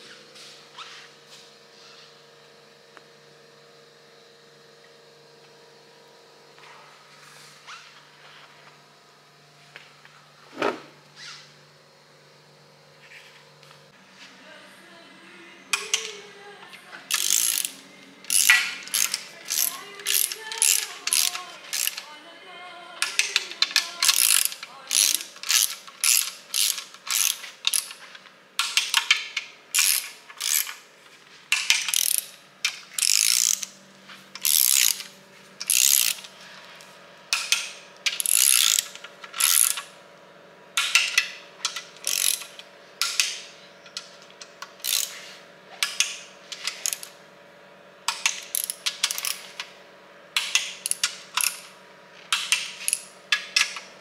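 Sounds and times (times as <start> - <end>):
ratchet wrench clicking: 15.7 - 16.2, 17.1 - 22.1, 23.0 - 30.8, 31.5 - 36.3, 37.3 - 39.9, 40.8 - 45.2, 45.8 - 47.2, 48.1 - 49.7, 50.4 - 53.9.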